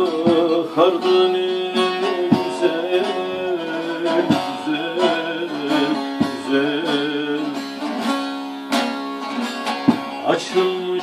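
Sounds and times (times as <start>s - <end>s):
person singing: 0.0s - 7.9s, 10.2s - 11.0s
plucked lute strings: 0.0s - 11.0s.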